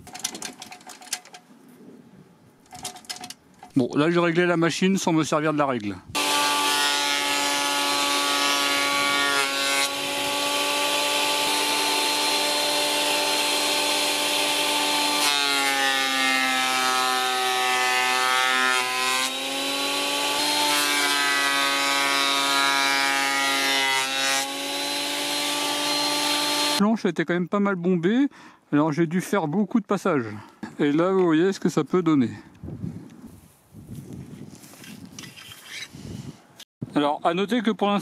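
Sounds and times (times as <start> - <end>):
planer motor whine: 6.2 - 15.3.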